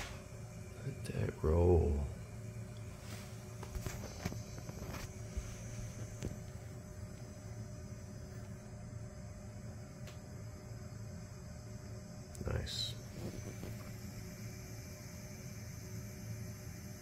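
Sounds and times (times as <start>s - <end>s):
stepper motor humming: 0.0s - 17.0s.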